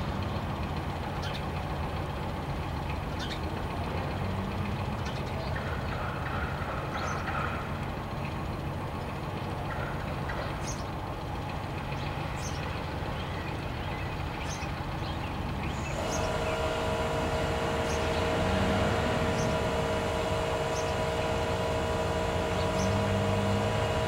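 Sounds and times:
droning hum with pitched tones: 3.2s - 24.0s
steady low rumble: 14.7s - 24.0s.

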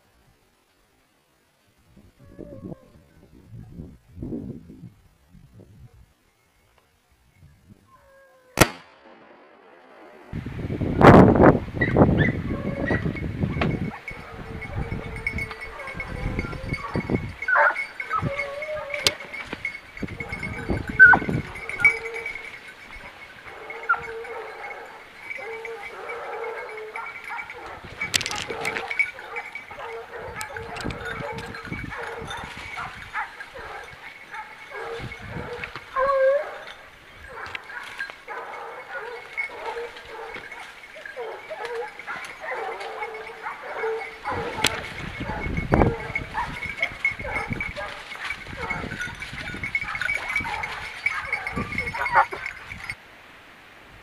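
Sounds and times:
hounds baying: 11.8s - 53.0s
faint high ringing: 13.1s - 53.0s.

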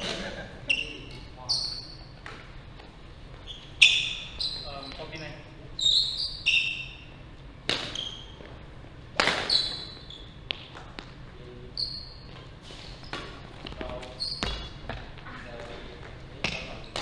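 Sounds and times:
shoes squeaking on wooden floor: 2.8s - 7.0s, 7.8s - 8.6s, 9.3s - 17.0s
rackets hitting shuttlecock: 7.6s - 8.0s, 9.1s - 11.2s, 16.4s - 17.0s.

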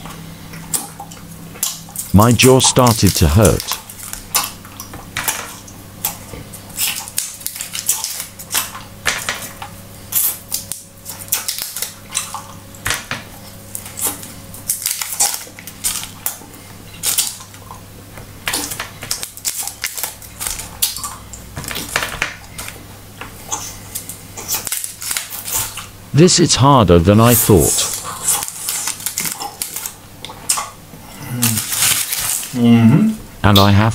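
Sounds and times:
low steady hum: 0.0s - 33.9s
paper wrappers crinkling: 27.3s - 30.0s, 31.3s - 32.6s.

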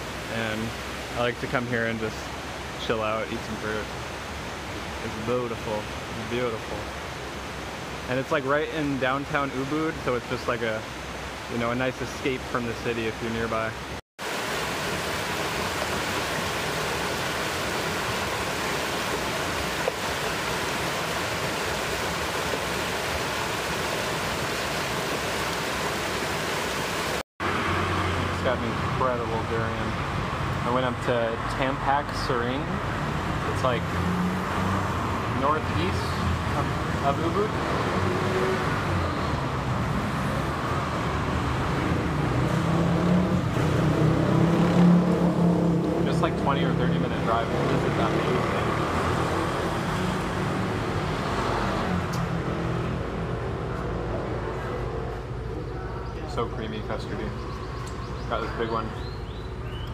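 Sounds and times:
hum of passing traffic: 0.0s - 59.9s
river rapids rushing over boulders: 14.2s - 27.2s
vehicle engine: 33.0s - 58.8s.

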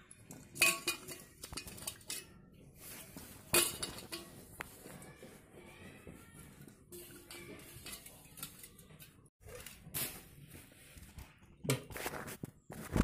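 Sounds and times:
metal kitchenware clinking: 0.0s - 5.0s, 6.9s - 10.4s.

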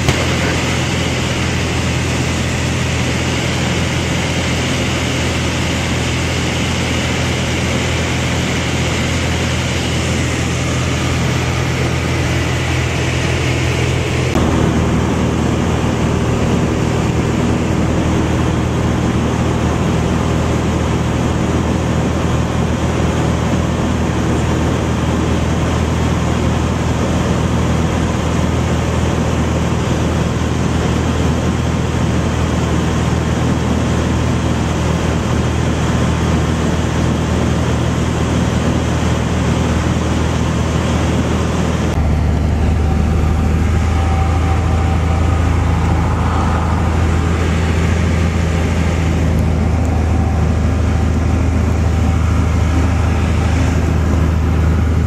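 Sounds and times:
propeller aircraft engine drone: 0.0s - 55.0s.

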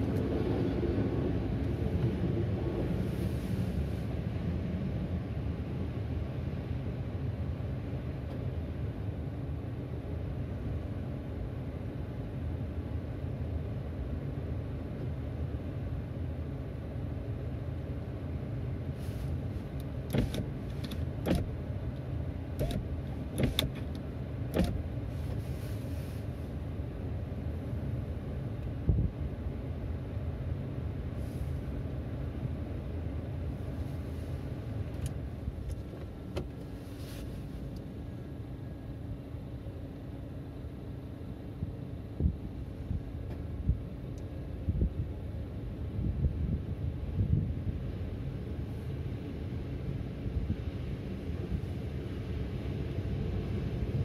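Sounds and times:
low rumble of passing vehicles: 0.0s - 54.0s
sharp clicks and knocks: 22.6s - 24.8s.

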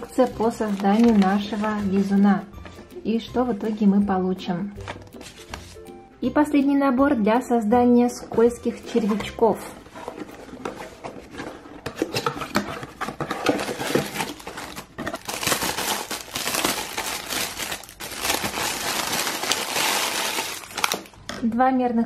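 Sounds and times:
cardboard packaging being opened: 0.0s - 1.7s, 4.9s - 5.8s, 9.8s - 21.2s
plastic bag crinkling: 0.0s - 1.9s, 13.0s - 21.2s.

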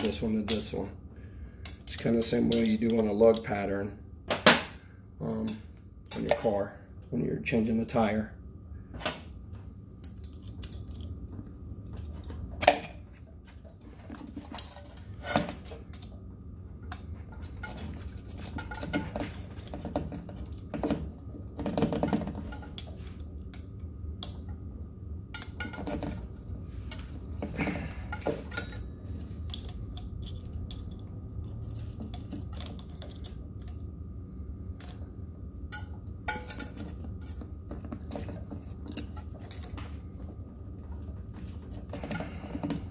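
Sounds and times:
steady low hum: 0.0s - 42.9s
metallic clinks and knocks: 28.0s - 33.8s.

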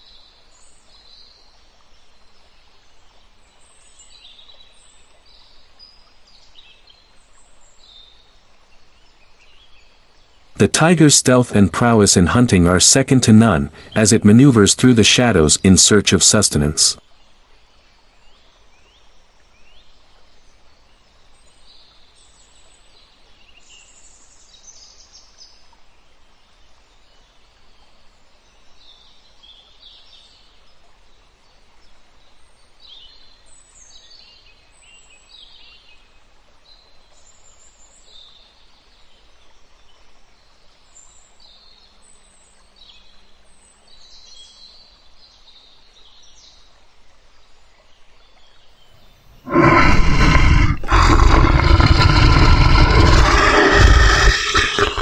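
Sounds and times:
steady background hiss: 7.6s - 21.4s.

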